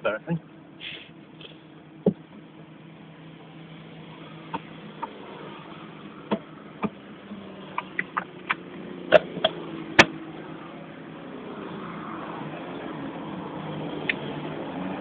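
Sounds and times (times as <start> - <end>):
car engine idling: 0.0 - 11.5
sharp irregular clicks and knocks: 7.7 - 10.1.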